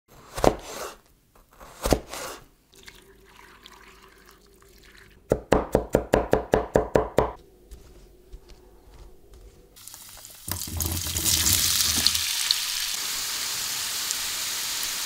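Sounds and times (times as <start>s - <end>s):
knife cutting potato on board: 0.1s - 2.4s.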